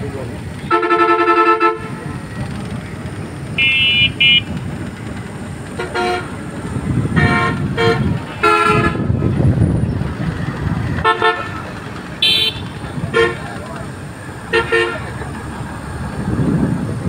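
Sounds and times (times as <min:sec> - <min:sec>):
engines and road traffic rumble: 0:00.0 - 0:17.0
vehicle horns honking: 0:00.6 - 0:02.3, 0:03.5 - 0:04.6, 0:05.7 - 0:06.4, 0:07.0 - 0:09.3, 0:11.0 - 0:13.8, 0:14.4 - 0:15.2.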